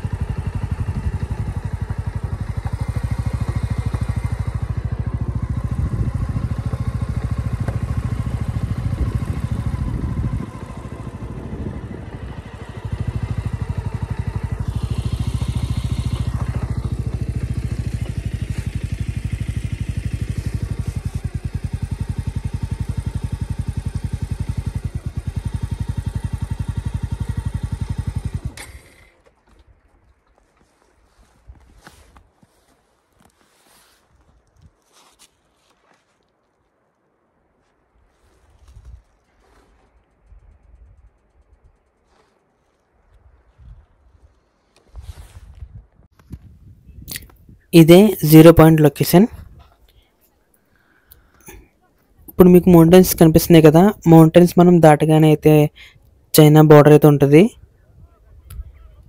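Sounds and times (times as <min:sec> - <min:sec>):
motorcycle engine running: 0:00.0 - 0:33.3, 0:38.2 - 0:49.8, 0:51.1 - 0:59.0.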